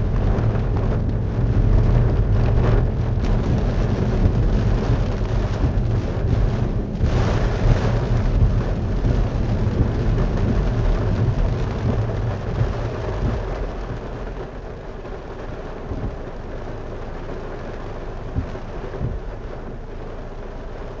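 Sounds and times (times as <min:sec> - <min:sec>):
heavy rain drumming on car: 0:00.0 - 0:21.0
low thunder rumble: 0:00.0 - 0:21.0
short thumps: 0:18.3 - 0:19.4.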